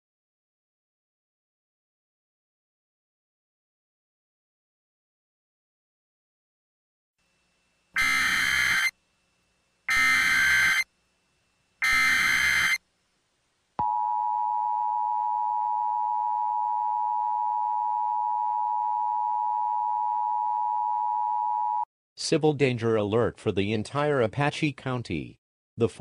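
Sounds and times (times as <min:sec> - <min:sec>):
digital data bursts: 0:08.0 - 0:08.9, 0:09.9 - 0:10.8, 0:11.8 - 0:12.8
two-tone electronic attention signal: 0:08.0 - 0:08.9, 0:09.9 - 0:10.8, 0:11.8 - 0:12.8.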